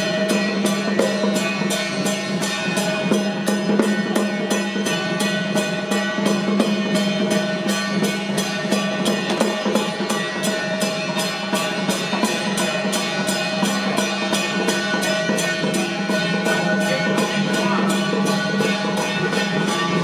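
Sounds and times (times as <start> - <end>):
cymbals crashing: 0.0 - 20.0
drums beating fast rhythm: 0.0 - 20.0
held melodic tones: 12.4 - 20.0.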